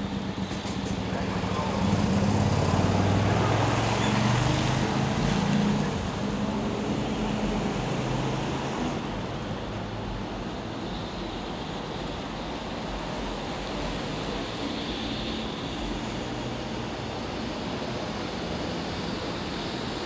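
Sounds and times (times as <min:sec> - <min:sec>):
passing vehicle rumble: 0:00.0 - 0:10.2
steady traffic noise: 0:00.0 - 0:20.0.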